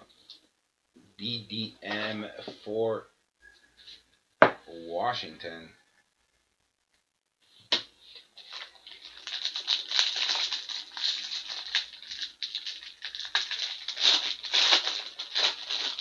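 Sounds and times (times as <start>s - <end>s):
foil wrapper tearing and crinkling: 8.4s - 16.0s.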